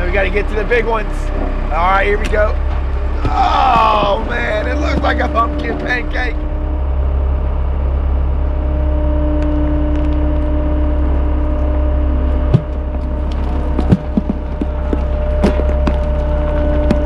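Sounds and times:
drum rolling over gravel: 0.0 - 6.4, 12.4 - 17.0
road roller engine running: 0.0 - 17.0.

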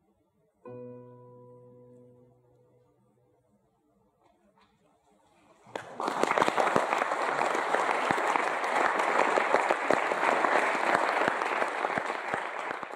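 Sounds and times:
audience applauding: 5.7 - 12.9.

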